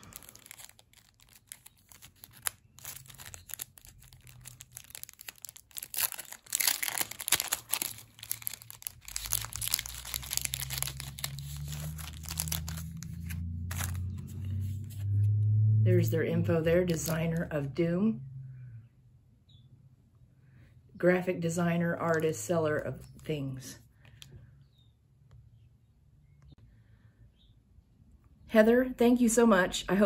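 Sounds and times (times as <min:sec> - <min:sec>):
plastic packaging crinkling: 0:00.0 - 0:14.8, 0:22.0 - 0:22.4.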